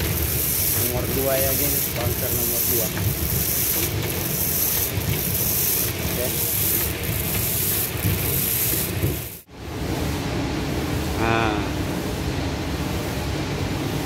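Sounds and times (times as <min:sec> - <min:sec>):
kernels pouring with gritty hissing rush: 0:00.0 - 0:09.5.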